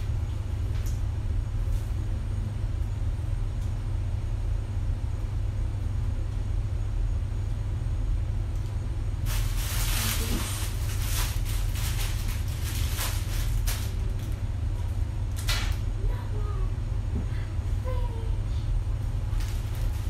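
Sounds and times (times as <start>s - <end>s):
steady low hum: 0.0s - 20.0s
plastic packaging crinkling: 9.2s - 14.4s, 19.3s - 20.0s.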